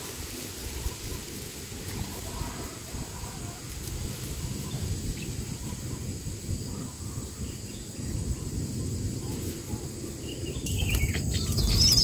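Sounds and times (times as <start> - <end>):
high insect drone: 0.0 - 12.0
faint bird chirps: 4.4 - 12.0.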